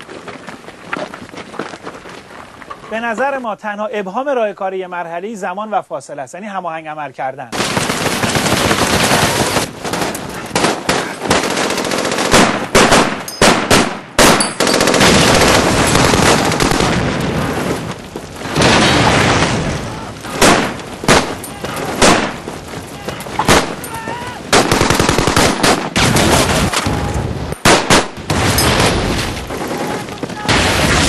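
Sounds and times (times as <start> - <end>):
machine gun and rifle fire: 7.5 - 17.0, 20.3 - 22.5, 23.3 - 23.8, 24.5 - 26.9, 27.6 - 31.0
loud single gunshots: 12.3 - 14.5, 20.3 - 22.4, 23.4 - 23.8, 24.5 - 26.7, 27.6 - 29.0.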